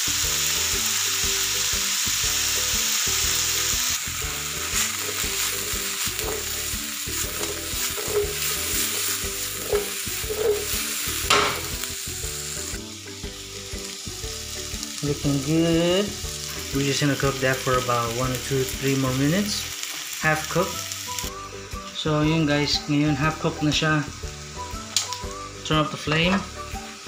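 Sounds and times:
vegetables sizzling in oil: 0.0s - 27.0s
scraping and knocks against pan: 6.2s - 6.6s, 7.2s - 11.7s.

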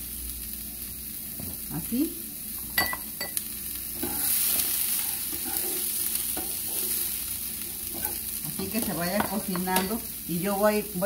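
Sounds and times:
beans sizzling in oil: 0.0s - 11.0s
spatula scraping pan: 4.0s - 10.0s.

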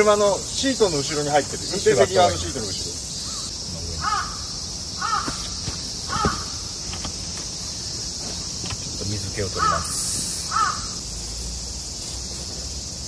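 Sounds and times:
high insect drone: 0.0s - 13.0s
crow cawing: 3.2s - 6.8s, 9.5s - 11.0s.

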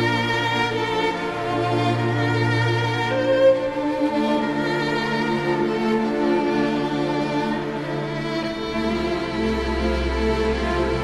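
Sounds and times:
background music held notes: 0.0s - 11.0s.

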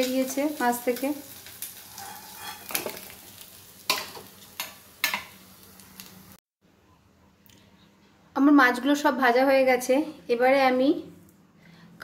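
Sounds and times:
hot oil sizzling in a wok: 0.0s - 6.4s.

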